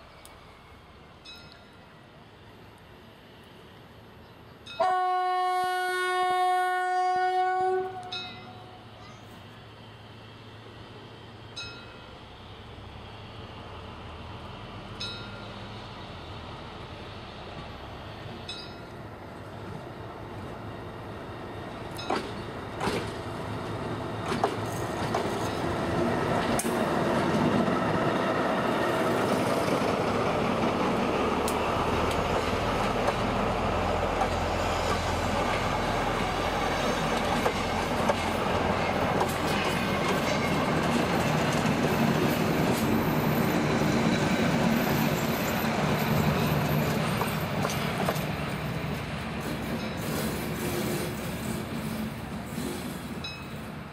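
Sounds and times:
diesel locomotive engine rumble: 0.0s - 53.9s
train wheels clicking over rail joints: 21.7s - 53.8s.

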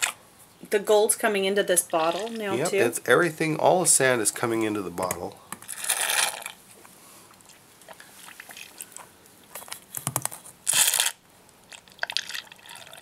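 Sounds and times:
water slurping: 1.9s - 2.5s, 7.3s - 9.2s, 11.7s - 13.0s.

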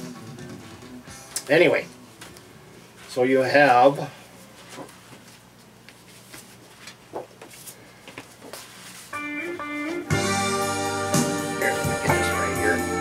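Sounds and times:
rock music with electric guitar: 0.0s - 1.5s, 9.2s - 13.0s
paper sleeves rustling: 4.4s - 9.2s.

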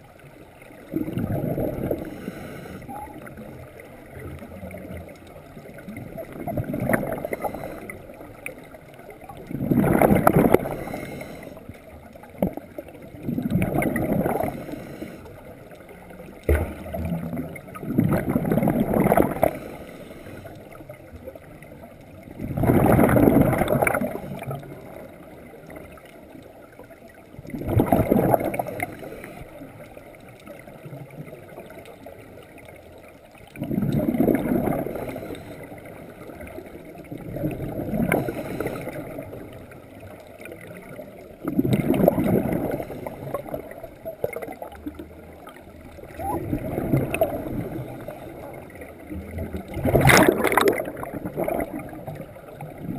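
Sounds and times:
gurgling exhaust bubbles: 0.7s - 11.0s, 12.2s - 14.9s, 15.9s - 19.7s, 20.9s - 25.9s, 27.4s - 29.0s, 33.5s - 52.9s
diver breathing through regulator: 1.8s - 2.9s, 7.1s - 8.1s, 10.5s - 11.7s, 14.3s - 15.4s, 19.3s - 20.6s, 38.0s - 39.2s.

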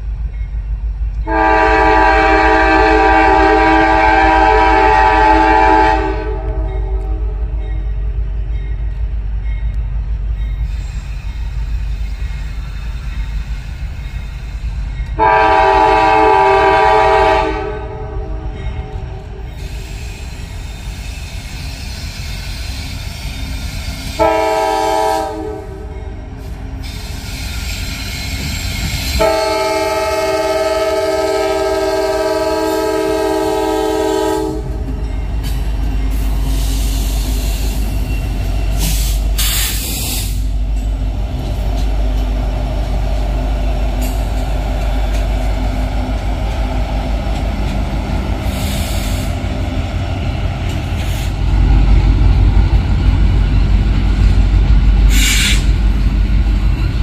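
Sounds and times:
wheels rumbling on rail: 0.0s - 57.0s
locomotive air horn blasts: 1.3s - 7.5s, 15.2s - 19.4s, 24.1s - 25.9s, 29.1s - 34.9s.

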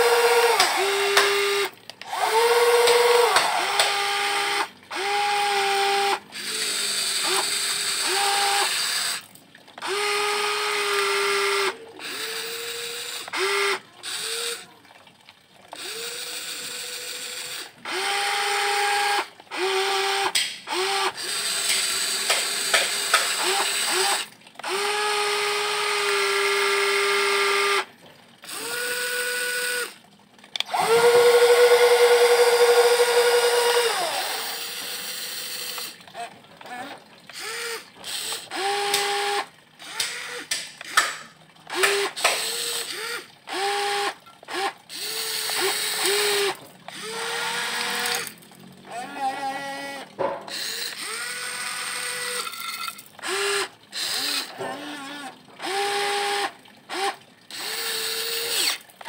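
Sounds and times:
electric motors whining: 0.0s - 8.7s, 30.6s - 36.0s, 53.2s - 58.8s.

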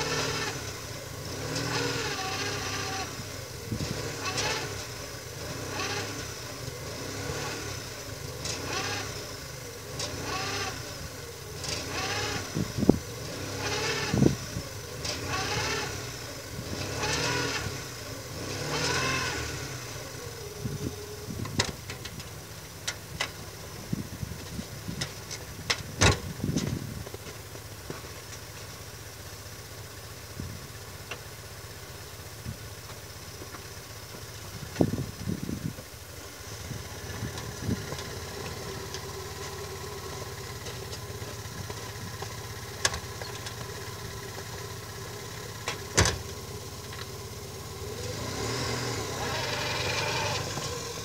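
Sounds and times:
small car engine idling: 0.0s - 51.0s
sharp engine knocks: 24.9s - 28.1s, 45.6s - 47.0s.

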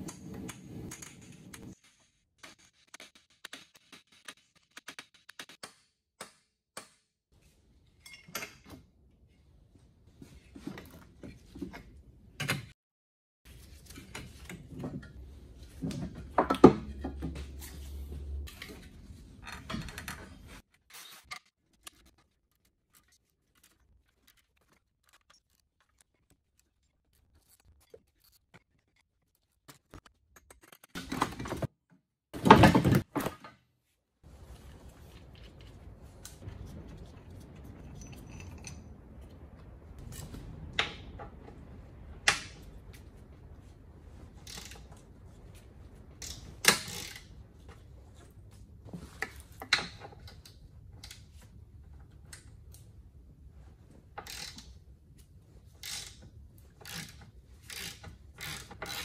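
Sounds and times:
metal clinks and scrapes: 7.9s - 8.8s, 34.4s - 40.5s.

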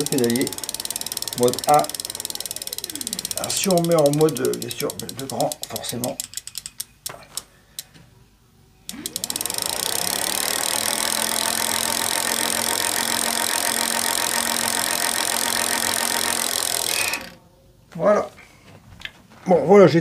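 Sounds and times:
hub motor whirring: 0.0s - 6.9s, 8.9s - 17.4s.

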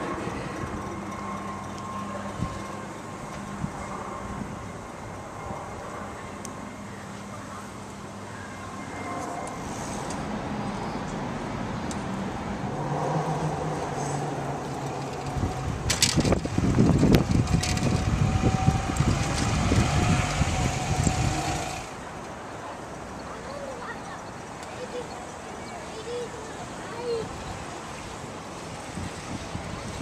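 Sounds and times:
vehicle passing with rumble: 8.7s - 22.0s.

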